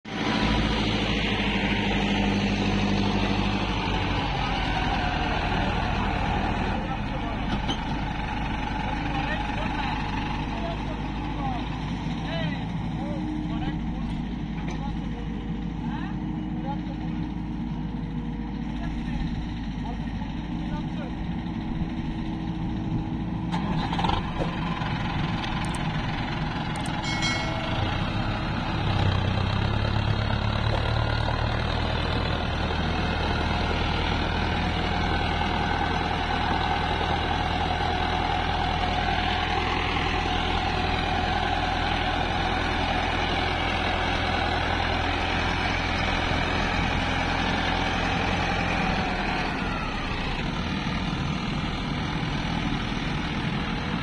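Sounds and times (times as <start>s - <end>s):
tractor diesel engines: 0.0s - 54.0s
excavator running: 0.1s - 54.0s.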